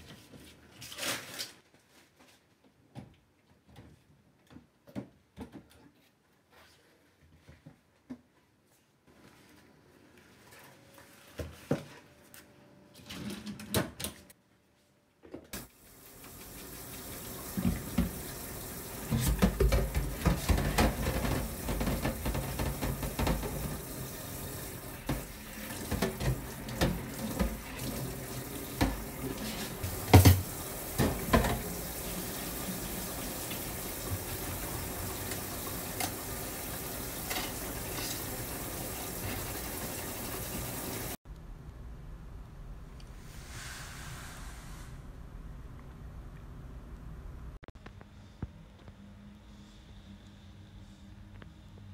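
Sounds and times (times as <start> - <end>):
tap spraying into metal sink: 29.8 - 31.7.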